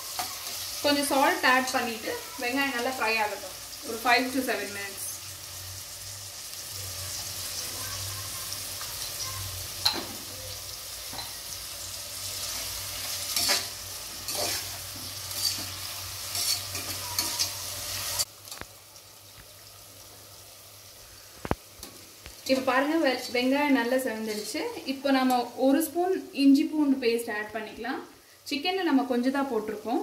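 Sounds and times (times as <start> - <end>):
onions sizzling in oil: 0.0 - 30.0
spatula scraping pot: 12.4 - 18.3.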